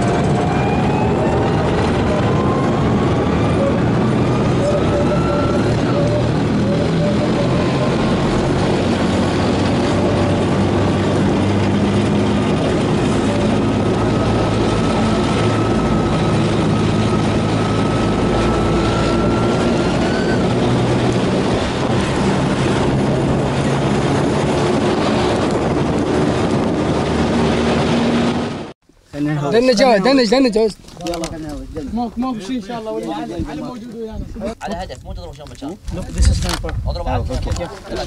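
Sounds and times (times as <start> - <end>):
armoured vehicle driving: 0.0 - 28.7.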